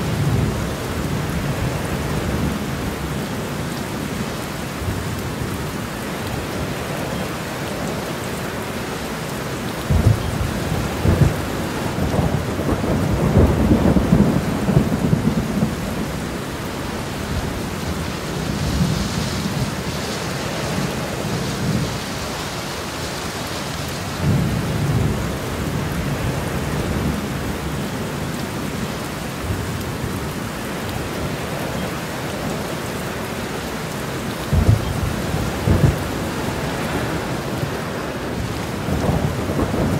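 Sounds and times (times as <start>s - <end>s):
heavy rain: 0.0s - 39.9s
thunder rumbling: 9.8s - 22.3s, 34.0s - 39.9s.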